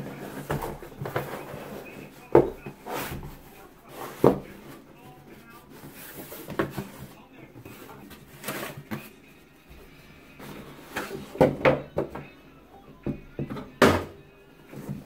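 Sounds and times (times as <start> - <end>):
cardboard flaps rustling: 0.0 - 9.1.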